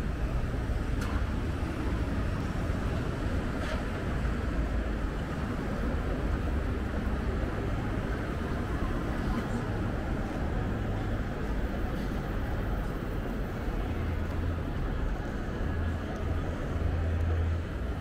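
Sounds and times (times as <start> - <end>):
vehicle rumbling in motion: 0.0 - 18.0.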